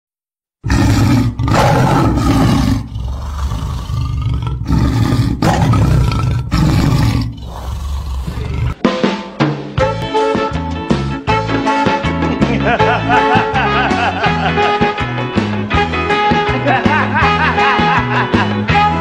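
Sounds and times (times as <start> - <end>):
band music: 8.3 - 19.0.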